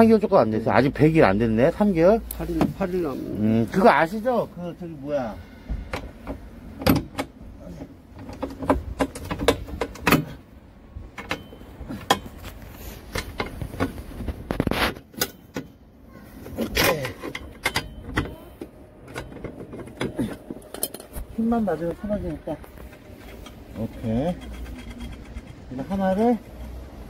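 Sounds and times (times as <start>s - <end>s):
metal scrape: 22.7s - 27.0s
ratchet clicks and knocks: 22.7s - 27.0s.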